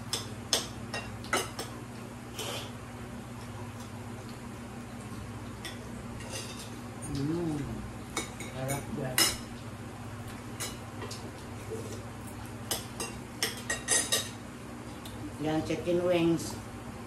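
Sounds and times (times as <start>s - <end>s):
steady low hum: 0.0s - 17.0s
person humming: 7.1s - 7.9s
cutlery clinking on plates: 12.7s - 14.4s.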